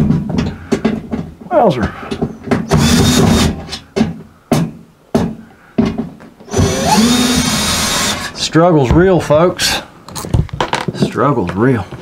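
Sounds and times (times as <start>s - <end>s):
cordless drill running: 2.7s - 3.6s, 6.5s - 8.4s.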